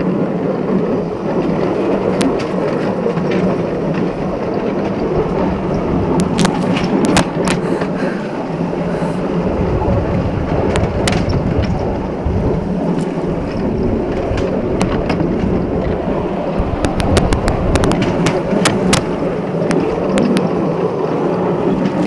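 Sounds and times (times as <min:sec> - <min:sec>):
miniature train wheels on rails: 0:00.0 - 0:22.0
sharp clicks: 0:16.8 - 0:20.5.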